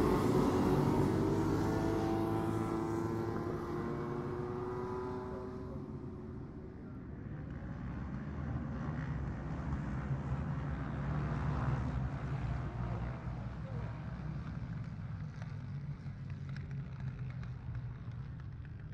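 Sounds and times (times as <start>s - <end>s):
racing motorcycle engine passing: 0.0s - 6.4s
low rumble of distant engines: 0.0s - 18.9s.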